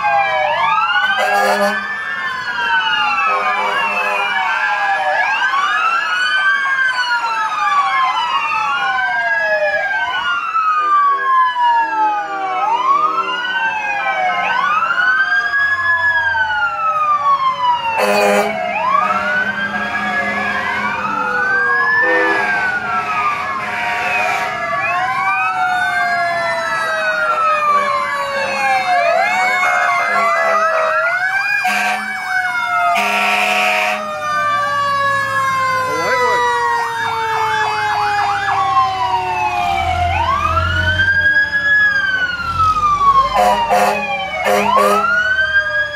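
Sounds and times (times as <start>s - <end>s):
fire truck sirens wailing: 0.0s - 45.9s
short horn blasts: 31.6s - 32.1s, 33.0s - 34.0s, 43.4s - 45.0s.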